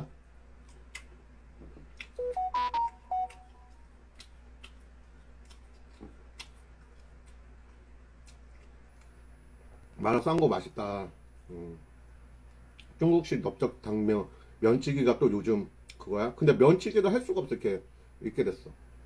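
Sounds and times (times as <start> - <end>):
short electronic beeps: 2.2 - 3.7.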